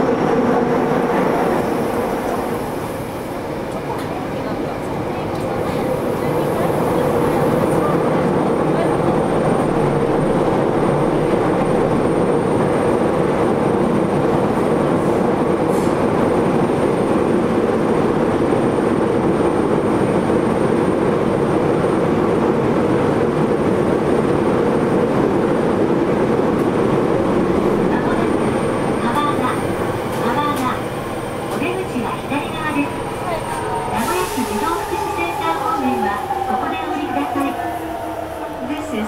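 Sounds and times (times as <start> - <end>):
train running noise: 0.0 - 39.0.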